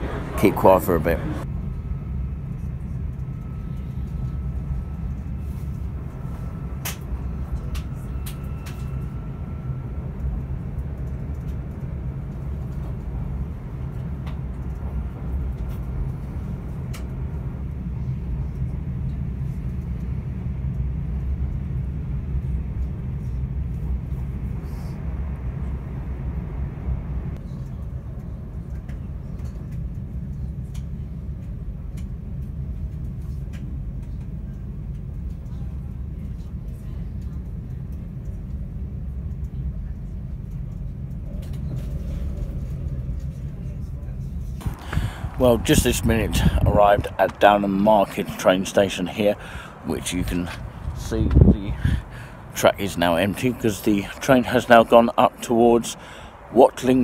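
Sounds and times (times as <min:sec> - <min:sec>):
train wheels rumbling on track: 0:00.0 - 0:27.4, 0:40.0 - 0:57.0.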